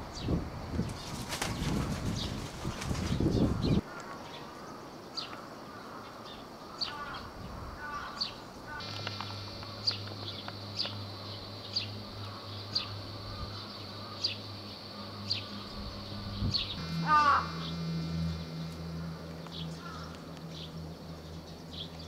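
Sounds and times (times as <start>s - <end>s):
small birds chirping: 0.1s - 22.0s
bird wings flapping: 0.8s - 3.7s
steady low hum: 8.4s - 22.0s.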